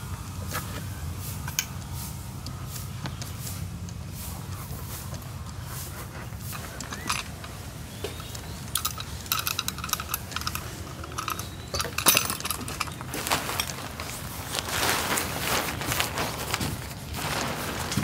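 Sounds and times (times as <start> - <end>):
rustling: 3.4 - 18.0
metallic clinks and rattles: 6.4 - 7.6, 8.2 - 14.4.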